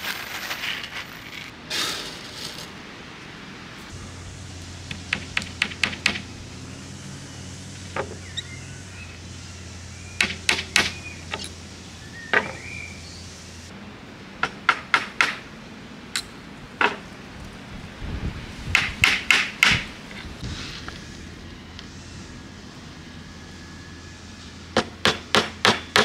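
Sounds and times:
hammer tapping nails: 0:04.9 - 0:06.3, 0:24.8 - 0:26.0.

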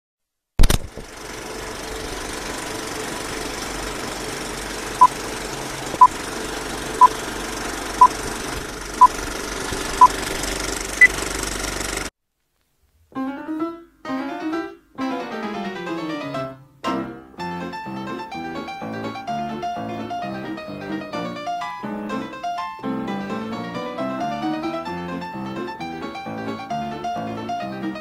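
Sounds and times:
projector clatter and hum: 0:00.6 - 0:12.1
harpsichord-like keyboard music: 0:13.2 - 0:28.0.

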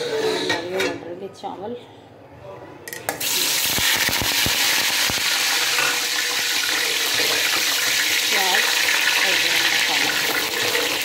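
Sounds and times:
onions sizzling in hot oil: 0:03.2 - 0:11.0.

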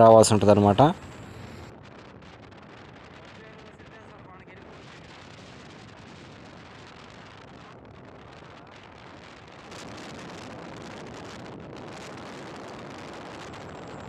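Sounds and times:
road noise: 0:00.0 - 0:02.4
wind buffeting microphone: 0:00.0 - 0:14.0.

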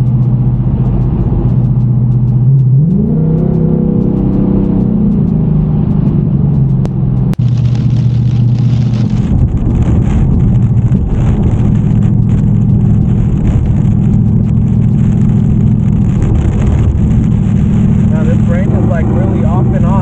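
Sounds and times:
car engine drone: 0:00.0 - 0:20.0
road and wind noise: 0:00.0 - 0:20.0
windshield wipers running: 0:00.0 - 0:20.0
rain on windshield: 0:04.1 - 0:20.0.

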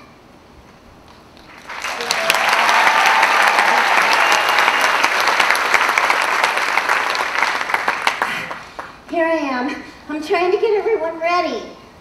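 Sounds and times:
audience applauding: 0:01.4 - 0:09.1.

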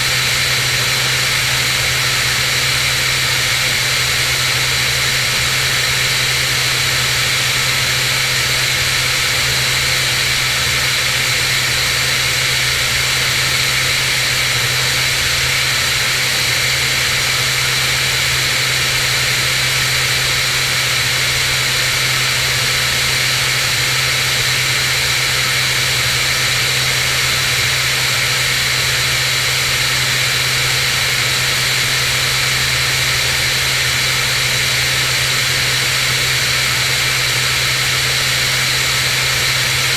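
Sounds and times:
airplane engine droning: 0:00.0 - 0:39.9.

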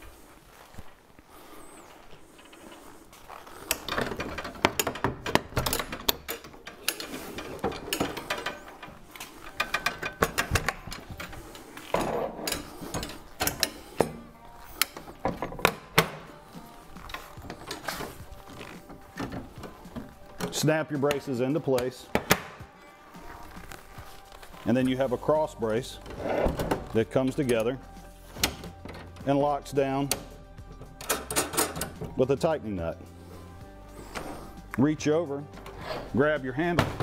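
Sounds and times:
metal table legs clicking and rattling: 0:03.7 - 0:16.3, 0:30.2 - 0:32.1.

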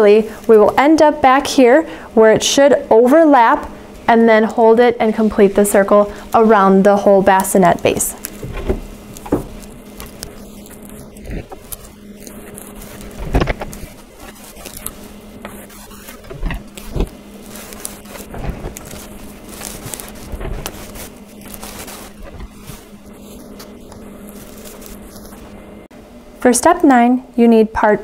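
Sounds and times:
steady low hum: 0:00.0 - 0:28.0
fabric rustling: 0:05.3 - 0:25.9
soft handling knocks: 0:08.3 - 0:10.5.

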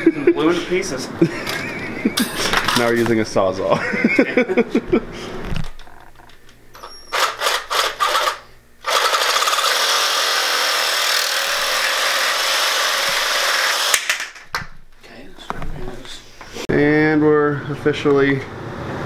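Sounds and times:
reciprocating saw cutting pipe: 0:07.2 - 0:14.0.

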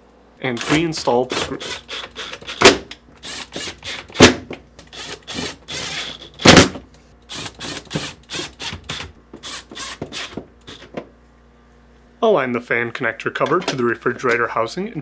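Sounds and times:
cordless drill running: 0:00.6 - 0:04.3, 0:04.9 - 0:06.6, 0:07.3 - 0:10.8.

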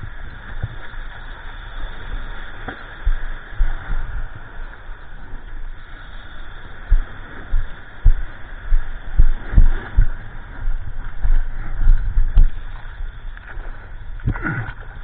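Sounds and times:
surf hiss: 0:00.0 - 0:15.0
water slapping against surfboard: 0:00.1 - 0:04.4.

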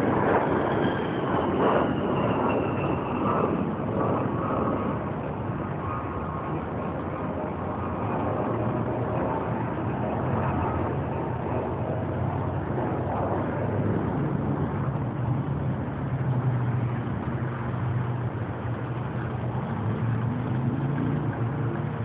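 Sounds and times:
traffic rumble: 0:00.0 - 0:22.0.

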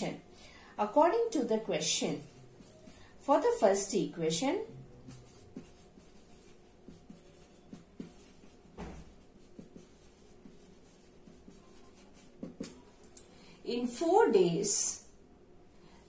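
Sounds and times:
marker pen writing on whiteboard: 0:00.8 - 0:13.1
tap on whiteboard: 0:07.7 - 0:09.9, 0:12.4 - 0:12.8.

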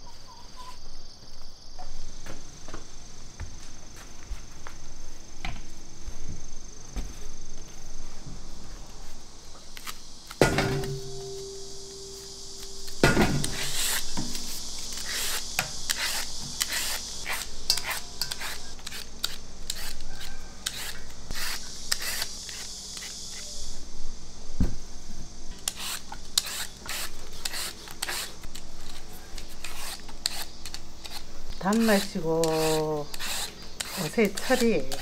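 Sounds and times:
steady hiss: 0:00.0 - 0:35.0
rubbing and scraping strokes: 0:25.7 - 0:35.0.

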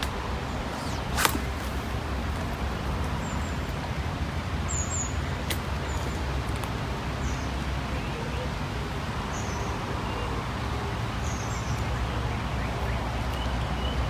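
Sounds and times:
faint bird chirps: 0:00.5 - 0:02.0.

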